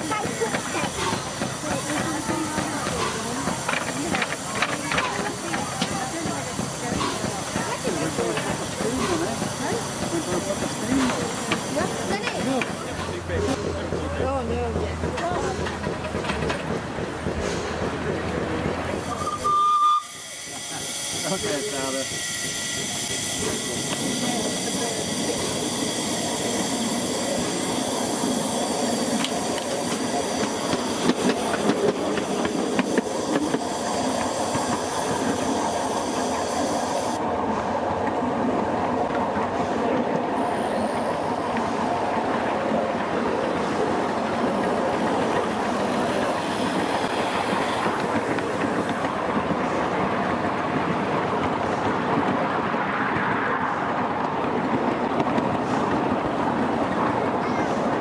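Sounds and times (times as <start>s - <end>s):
loud steam hiss: 0.0s - 13.8s, 18.8s - 38.0s, 39.4s - 52.7s
locomotive wheels clicking on rails: 0.0s - 58.0s.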